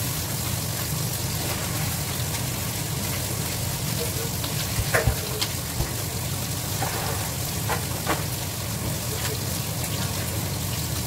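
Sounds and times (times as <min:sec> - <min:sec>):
tap water running into sink: 0:04.0 - 0:09.4.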